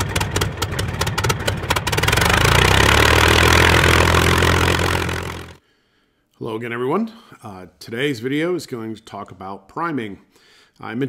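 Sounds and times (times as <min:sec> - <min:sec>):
piston aircraft engine starting: 0:00.0 - 0:05.6.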